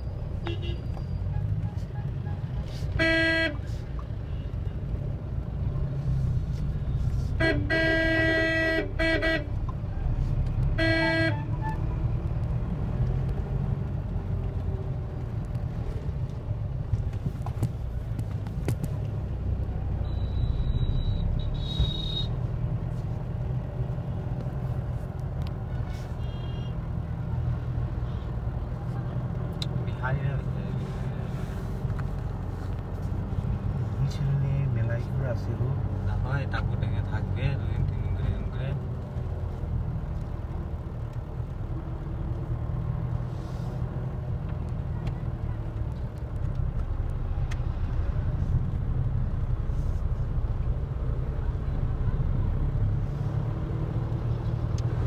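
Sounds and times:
car engine and road noise: 0.0s - 55.0s
vehicle horn: 0.4s - 0.9s, 2.2s - 3.7s, 7.3s - 9.6s, 10.7s - 11.8s, 20.1s - 22.3s, 26.0s - 26.8s.

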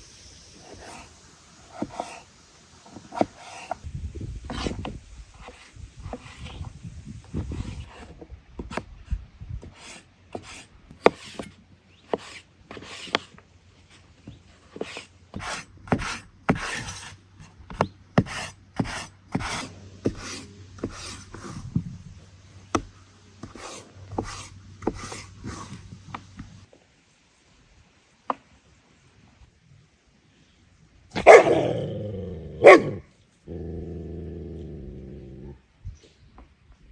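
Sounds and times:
knife scraping and cutting potatoes: 0.6s - 2.3s, 2.9s - 8.9s, 9.6s - 22.0s, 22.7s - 26.5s.

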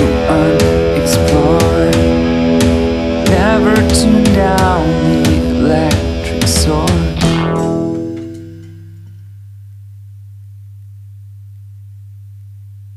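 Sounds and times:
rock band final hits: 0.0s - 9.1s.

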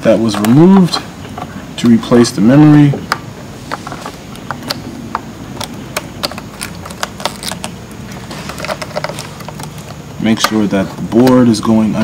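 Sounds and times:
fingers handling circuit board: 3.0s - 11.4s.

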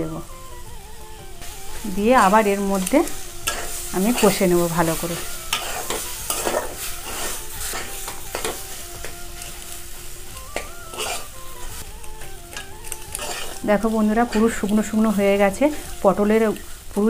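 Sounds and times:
food sizzling in oil: 0.0s - 17.0s
metal spatula scraping metal pan: 2.0s - 9.8s, 10.5s - 11.8s, 12.5s - 16.8s.

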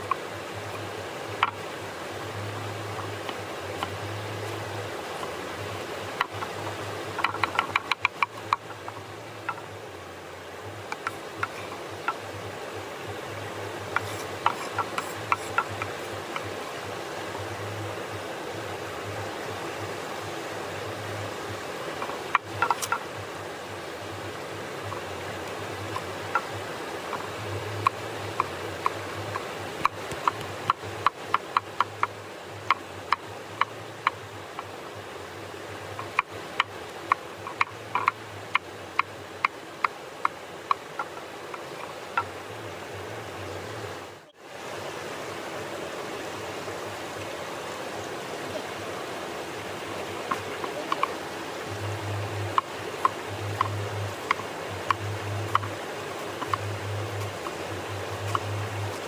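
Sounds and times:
mountain stream rushing: 0.0s - 59.0s
cleaver chopping on wooden board: 14.0s - 16.0s.

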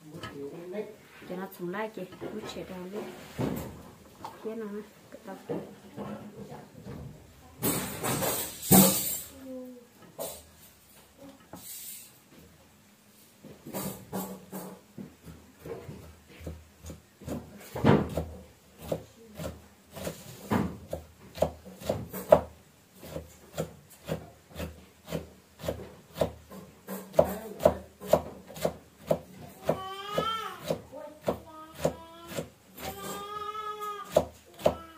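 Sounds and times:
cleaver chopping on wooden block: 16.4s - 32.5s.

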